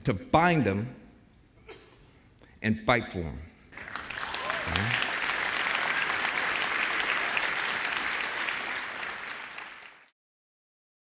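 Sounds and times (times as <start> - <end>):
audience applauding: 3.8 - 10.1.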